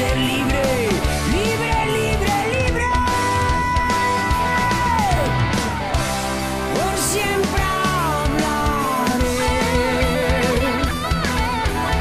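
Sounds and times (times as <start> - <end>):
bass guitar: 0.0 - 12.0
electric guitar lead bending: 0.0 - 12.0
hard rock music: 0.0 - 12.0
steady drum beat: 0.0 - 12.0.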